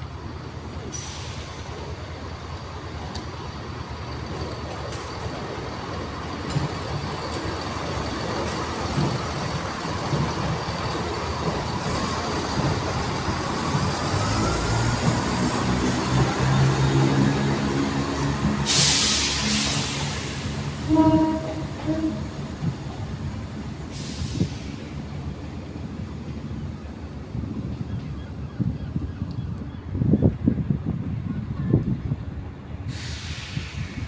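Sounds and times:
train rumbling: 0:00.0 - 0:34.0.

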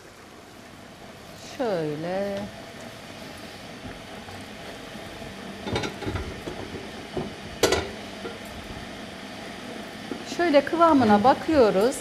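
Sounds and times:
ladle clinking and scraping in pot: 0:05.6 - 0:06.7.

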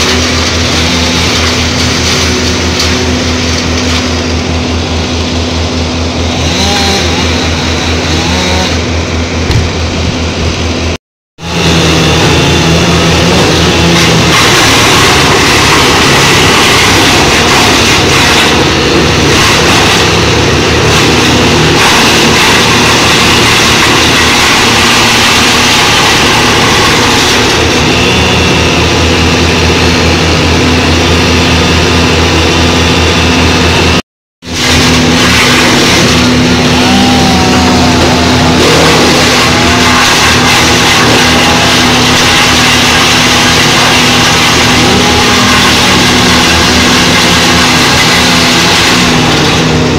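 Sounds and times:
wood chipper chipping branches: 0:00.0 - 0:49.9.

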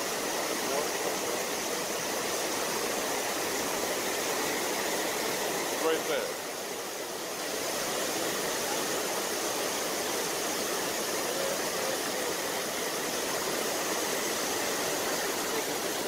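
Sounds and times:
small waterfall rushing: 0:00.0 - 0:16.0.

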